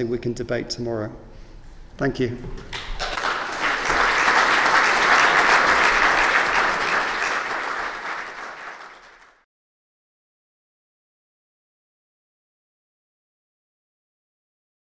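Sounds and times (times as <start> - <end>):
audience applauding: 2.7 - 9.4.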